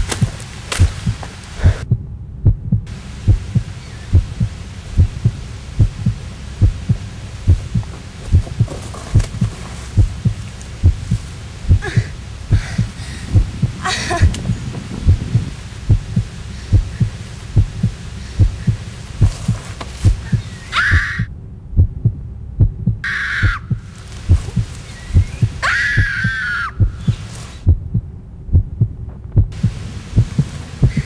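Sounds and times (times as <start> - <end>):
heartbeat thumps: 0.0 - 31.0.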